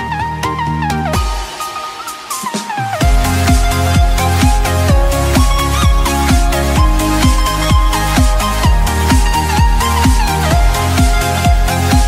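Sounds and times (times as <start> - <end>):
electronic music: 0.0 - 12.0
synth melody: 0.0 - 12.0
deep kick drum: 3.0 - 12.0.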